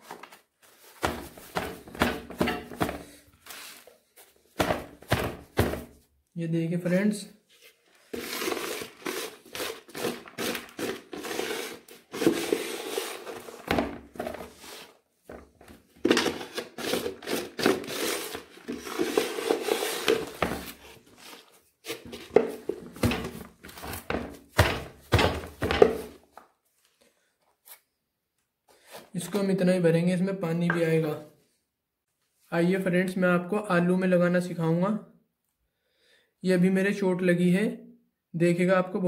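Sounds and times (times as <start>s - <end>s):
soil being poured into bag: 8.1s - 13.3s.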